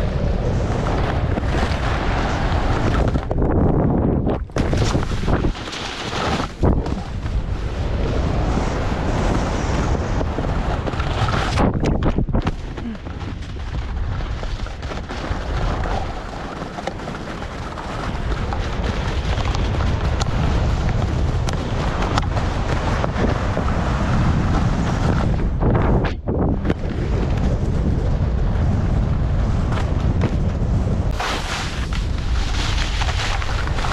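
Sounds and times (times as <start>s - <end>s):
wind buffeting microphone: 0.0s - 33.9s
skis hissing over snow: 4.7s - 6.6s, 31.1s - 33.9s.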